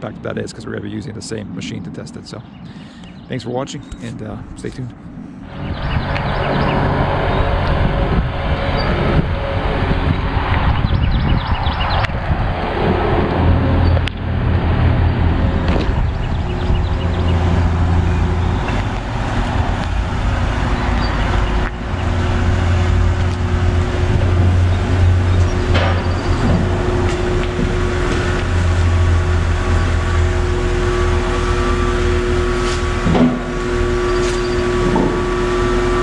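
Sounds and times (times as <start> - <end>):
car engine idling: 13.4 - 36.0
clunk: 25.7 - 28.2, 32.6 - 33.6, 34.2 - 35.3.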